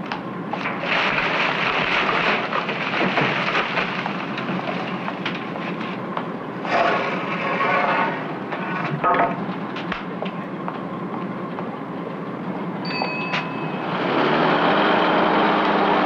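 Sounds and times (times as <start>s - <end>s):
rubbish clattering into bin lorry: 0.6s - 6.0s, 6.6s - 9.9s.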